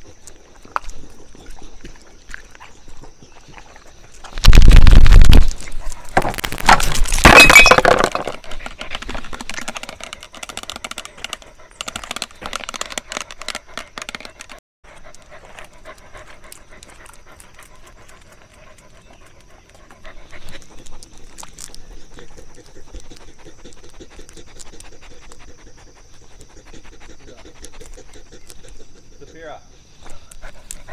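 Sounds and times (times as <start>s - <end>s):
dog panting: 9.7s - 30.9s.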